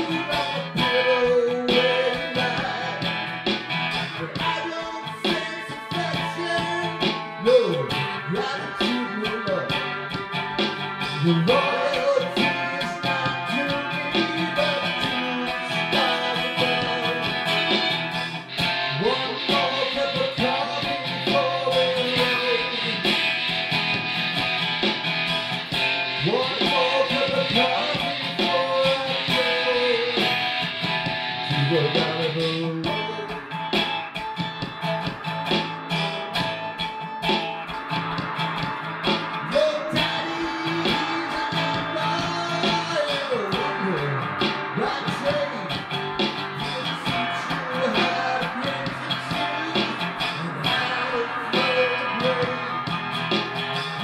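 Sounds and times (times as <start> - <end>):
man singing: 0.0 - 3.3, 3.9 - 10.1, 11.0 - 23.6, 26.2 - 30.6, 31.4 - 33.7, 39.4 - 54.0
acoustic guitar strumming: 0.0 - 54.0.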